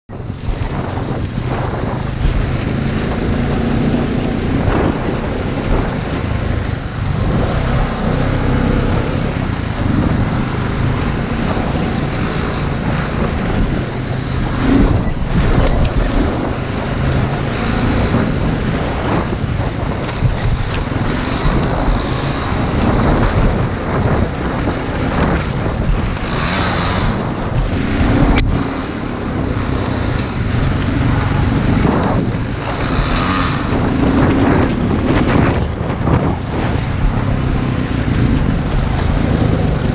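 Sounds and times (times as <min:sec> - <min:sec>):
wind buffeting microphone: 0:00.1 - 0:39.9
quad bike engine revving: 0:00.3 - 0:39.9.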